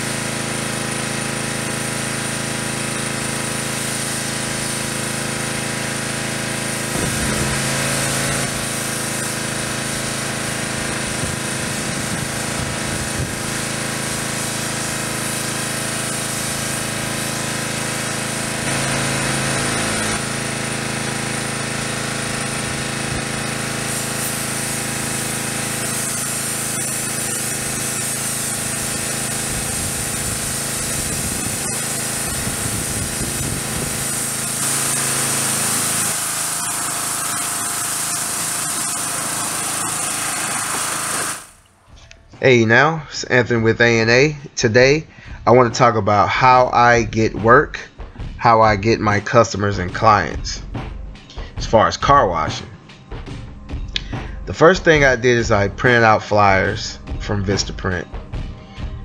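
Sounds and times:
small engine running: 0.0s - 42.1s
water spray hiss: 3.0s - 5.3s, 6.5s - 41.7s.

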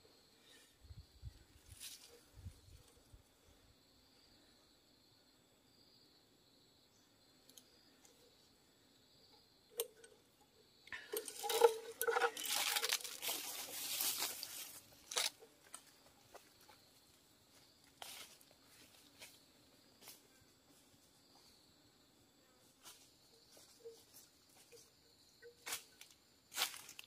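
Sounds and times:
faint insect buzz: 0.0s - 27.0s
twigs snapping: 11.1s - 15.8s
footsteps crunching dry leaves: 11.3s - 15.4s, 26.5s - 27.0s.

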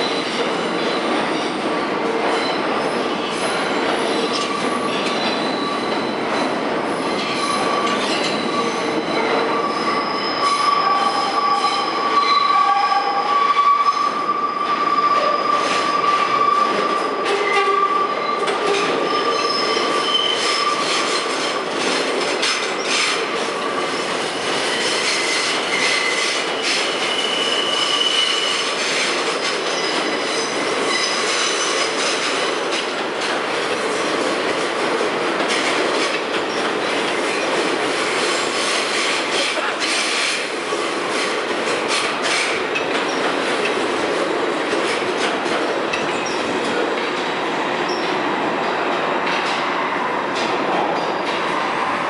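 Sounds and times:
subway trains moving: 0.0s - 52.0s
steel wheels squealing: 2.4s - 6.4s, 7.0s - 21.6s, 22.4s - 32.2s.

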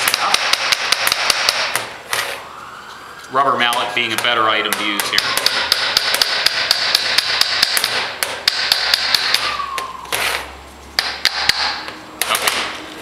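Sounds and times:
small hammer tapping on metal: 0.0s - 1.8s, 3.7s - 9.6s, 11.0s - 12.6s.

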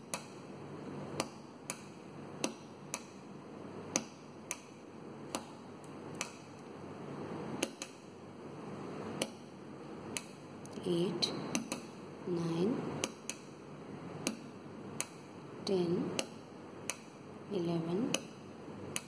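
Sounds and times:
low steady hiss: 0.0s - 19.0s
switch clicks: 7.6s - 8.0s, 11.5s - 11.9s.

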